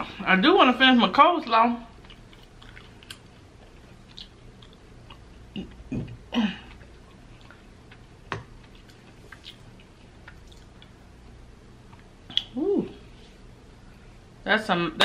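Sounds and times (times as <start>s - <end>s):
person chewing: 2.0s - 12.6s.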